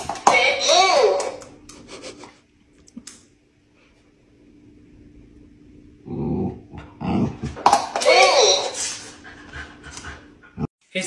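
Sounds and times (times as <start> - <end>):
dog growling: 6.0 - 7.6.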